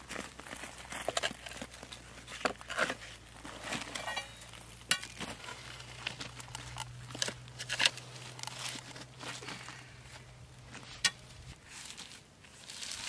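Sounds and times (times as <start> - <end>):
boots crunching on gravel: 0.0 - 13.0.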